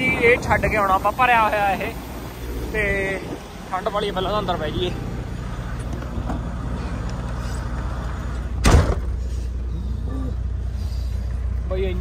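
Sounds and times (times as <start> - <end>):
diesel engine idling: 0.0 - 12.0
truck door slamming: 8.6 - 9.3.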